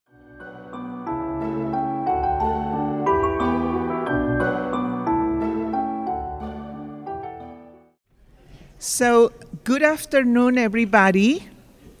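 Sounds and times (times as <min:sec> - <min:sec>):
soft sustained music notes: 0:00.3 - 0:07.8.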